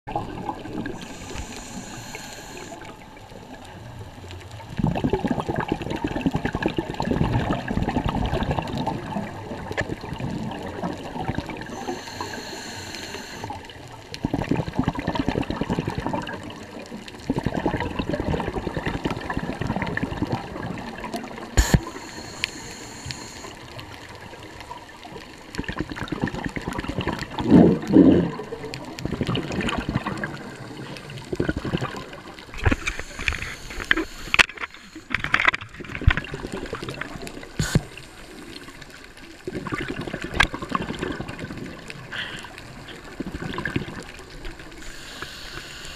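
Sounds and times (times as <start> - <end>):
exhaust bubbles gurgling: 0.1 - 45.4
regulator hiss on inhale: 0.8 - 3.0, 11.6 - 13.8, 21.6 - 23.8, 32.6 - 35.6, 37.6 - 38.7, 42.1 - 42.6, 44.7 - 45.9.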